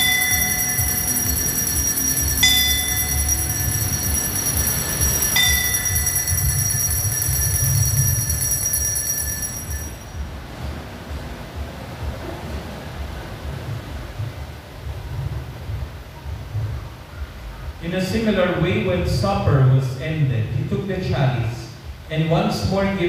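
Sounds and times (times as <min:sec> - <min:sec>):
single bell struck: 0:00.0 - 0:10.2
small bells shaken: 0:00.0 - 0:10.2
low rumble of wind: 0:00.0 - 0:23.0.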